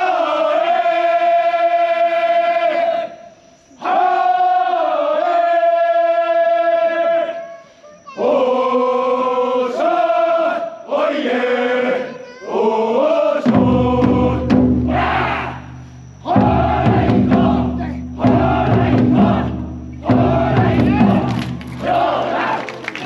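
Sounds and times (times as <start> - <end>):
men chanting in chorus: 0.0 - 7.4, 8.2 - 23.0
crowd shouting: 8.1 - 23.0.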